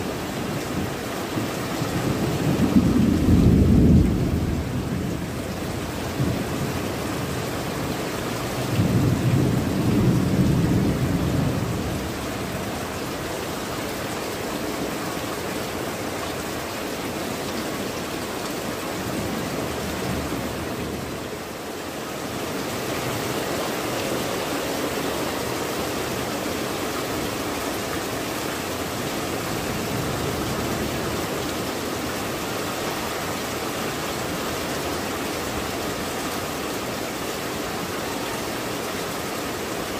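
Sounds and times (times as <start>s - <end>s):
heavy rain on tile roofs: 0.0s - 39.9s
low thunder rumble: 2.0s - 5.5s.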